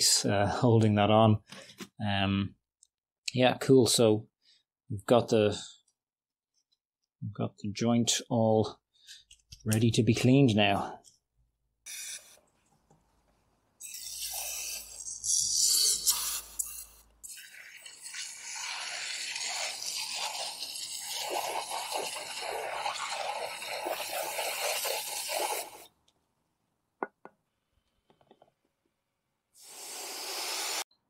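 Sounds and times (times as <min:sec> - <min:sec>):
aerosol spray hissing: 0:15.6 - 0:17.5, 0:18.6 - 0:25.8, 0:29.6 - 0:30.9.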